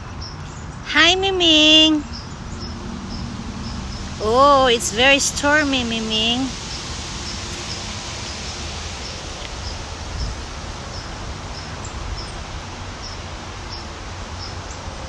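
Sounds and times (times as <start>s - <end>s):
strong wind rustling leaves: 1.6s - 15.0s
wind rumble on microphone: 6.5s - 15.0s.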